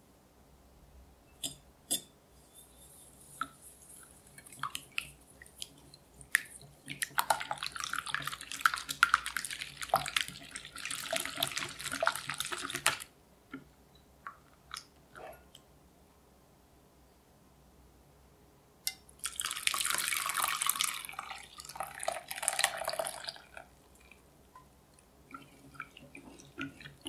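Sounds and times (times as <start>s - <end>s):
wet sloshing: 25.3s - 27.0s.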